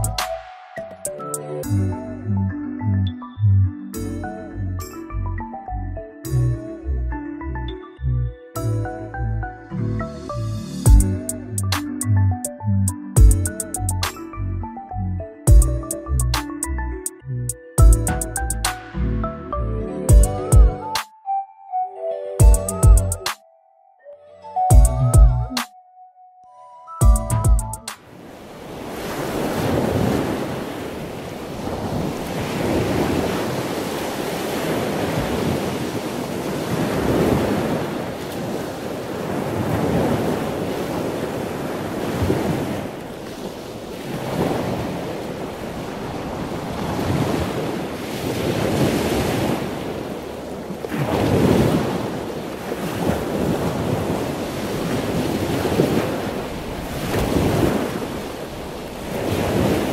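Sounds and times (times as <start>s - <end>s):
ocean surf on sandy beach: 27.9s - 59.9s.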